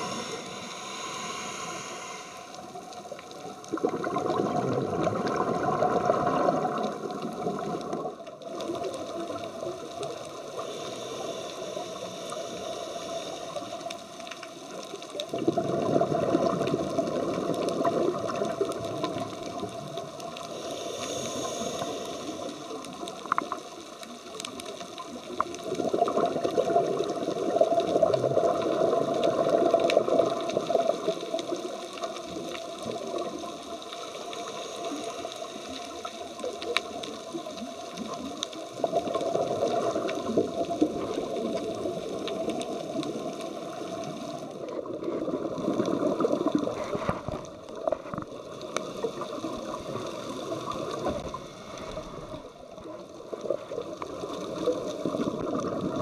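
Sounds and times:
underwater hiss: 0.0 - 56.0
exhaled bubbles rushing: 3.3 - 10.5, 15.3 - 20.3, 25.6 - 31.7, 38.7 - 56.0.

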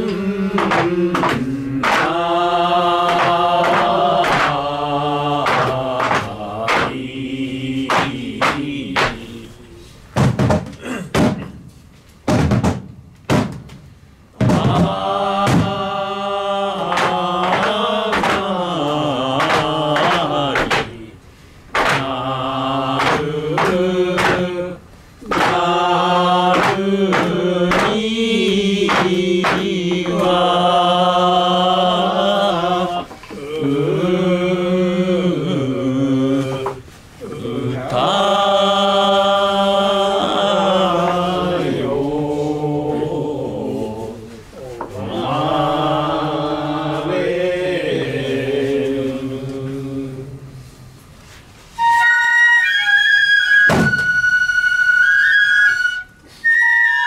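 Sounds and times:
voices chanting a folk song: 0.0 - 10.1, 14.3 - 52.1
sharp knocks: 0.1 - 2.3, 3.0 - 4.7, 5.4 - 7.0, 7.8 - 9.3, 10.1 - 15.9, 16.8 - 21.0, 21.7 - 22.2, 22.9 - 24.5, 25.2 - 28.1, 28.8 - 30.4, 53.7 - 54.2.

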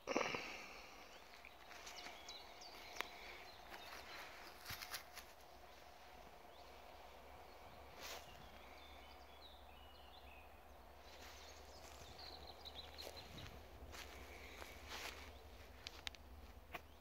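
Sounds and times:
faint bird chirps: 0.0 - 16.2
brief rustle: 4.4 - 5.3.

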